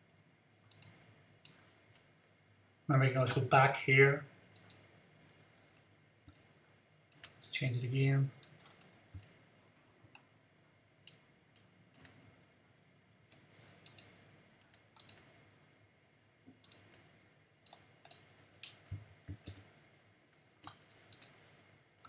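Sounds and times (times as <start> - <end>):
computer mouse clicks: 0.7 - 1.6, 4.6 - 5.3, 7.1 - 7.4, 8.4 - 9.4, 11.1 - 12.2, 13.3 - 15.3, 16.6 - 17.0, 17.6 - 19.7, 20.6 - 21.4
keyboard keystrokes: 19.3 - 19.6.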